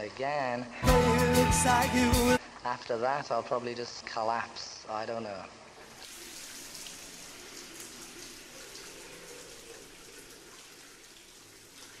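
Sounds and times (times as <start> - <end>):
shower water spraying: 5.9 - 12.0.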